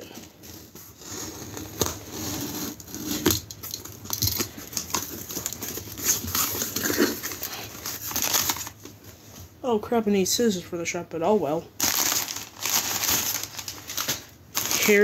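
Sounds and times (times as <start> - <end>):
paper packing crinkling: 0.0 - 9.1, 11.8 - 15.0
knife slitting packing tape: 1.0 - 8.7.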